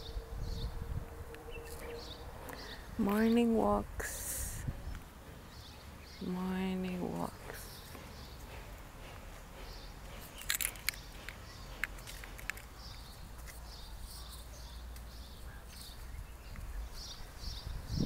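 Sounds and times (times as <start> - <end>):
bird chirping: 0.0 - 3.5, 4.8 - 18.0
steady low rumble: 0.0 - 14.1.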